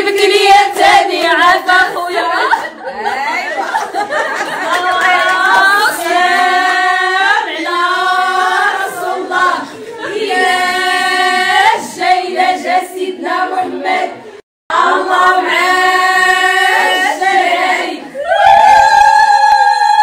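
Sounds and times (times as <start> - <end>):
women singing without instruments: 0.0 - 2.8.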